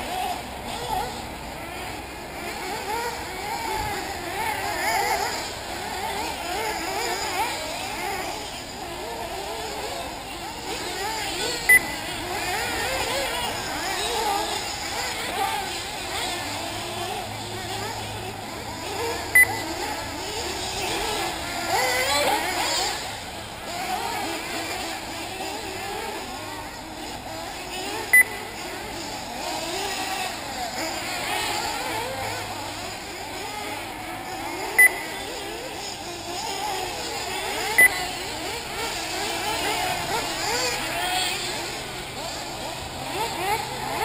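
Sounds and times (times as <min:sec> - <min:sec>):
rc car engines whining: 0:00.0 - 0:44.0
short loud electronic beeps: 0:34.8 - 0:35.0.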